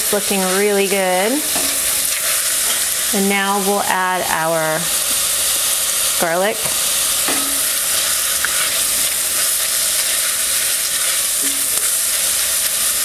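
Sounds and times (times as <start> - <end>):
spatula stirring in pan: 0.0 - 3.2, 4.9 - 13.0
vegetables sizzling in grease: 0.0 - 13.0.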